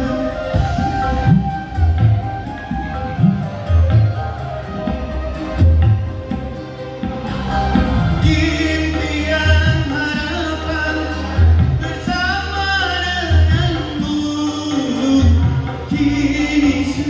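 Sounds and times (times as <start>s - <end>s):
backing track with heavy bass: 0.0s - 17.0s
man singing into a microphone: 8.1s - 17.0s.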